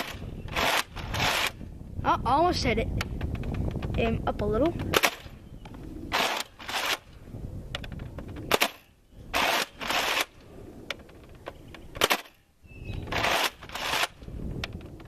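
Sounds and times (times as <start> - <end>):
toy blaster firing cracks: 8.5 - 10.4, 12.0 - 12.4.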